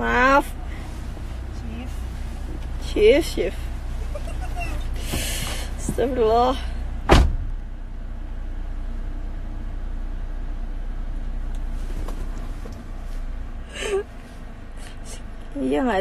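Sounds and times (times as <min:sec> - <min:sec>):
car cabin low rumble: 0:00.0 - 0:16.0
person laughing: 0:04.0 - 0:05.0, 0:13.7 - 0:14.1.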